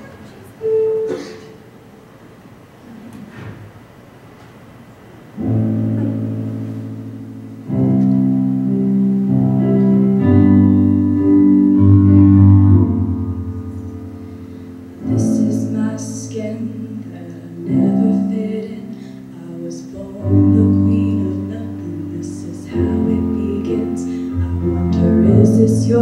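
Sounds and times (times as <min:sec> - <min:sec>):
electronic keyboard piano chords: 0:05.4 - 0:17.0, 0:20.0 - 0:26.0
woman singing: 0:15.0 - 0:26.0.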